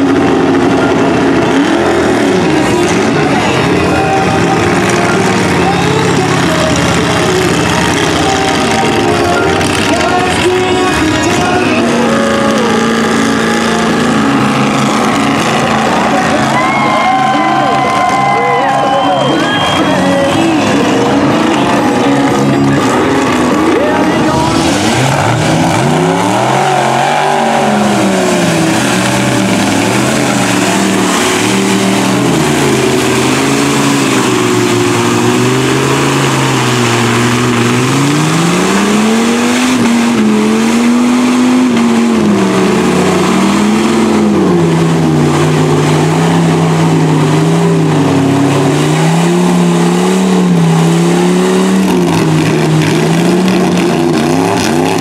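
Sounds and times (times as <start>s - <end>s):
truck engine revving hard: 0.0s - 55.0s
mud spraying off tyres: 24.3s - 55.0s.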